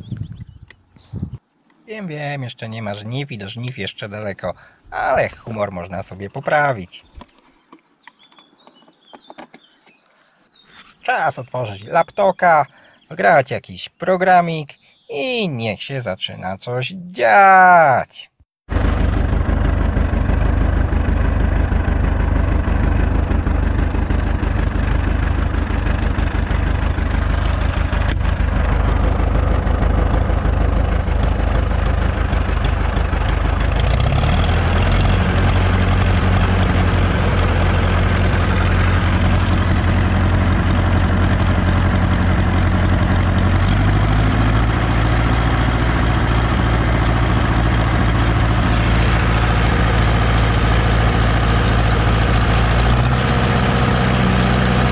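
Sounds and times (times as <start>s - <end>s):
diesel tractor engine running: 18.7s - 54.9s.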